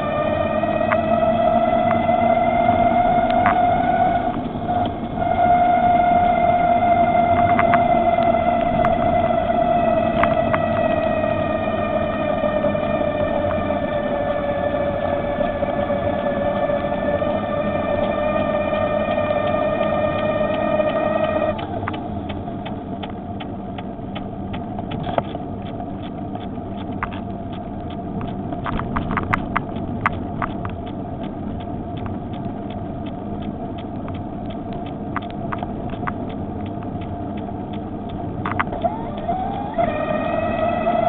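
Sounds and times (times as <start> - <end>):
electric bicycle motor whine: 0.0 - 21.9, 38.6 - 41.0
tyres and wind rumble: 0.0 - 41.0
sharp clicks: 21.6 - 41.0.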